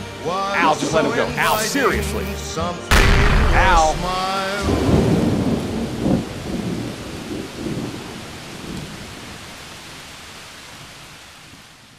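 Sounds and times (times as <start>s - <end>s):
steady rain: 1.5s - 11.9s
thunder rumbling: 2.9s - 9.4s.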